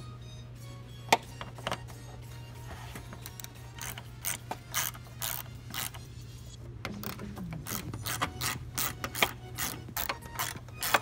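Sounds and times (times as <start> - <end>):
hand ratchet clicking: 3.3 - 6.0, 7.7 - 11.0.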